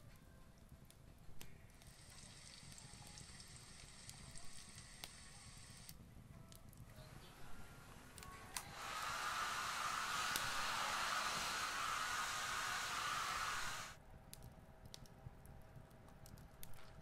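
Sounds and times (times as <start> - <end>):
hair dryer blowing: 7.5 - 14.0.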